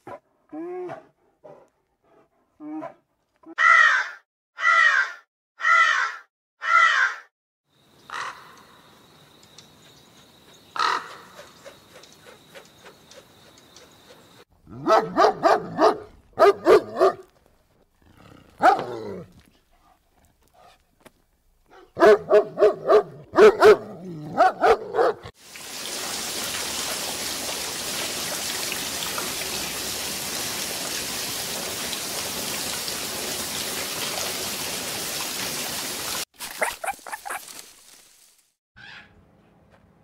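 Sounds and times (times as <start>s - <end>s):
high whine with clicks: 9.4s - 9.7s
harsh high animal calls: 38.8s - 39.2s
lower pitched animal calls: 38.8s - 39.2s.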